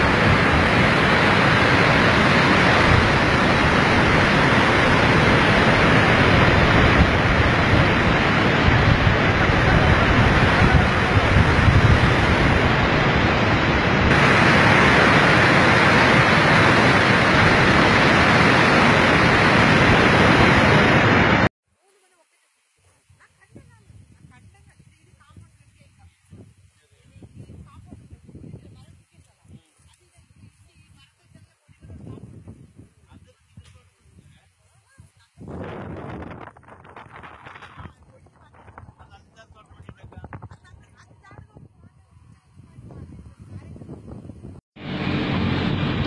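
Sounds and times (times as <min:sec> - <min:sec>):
floodwater rushing: 0:00.0 - 0:21.5.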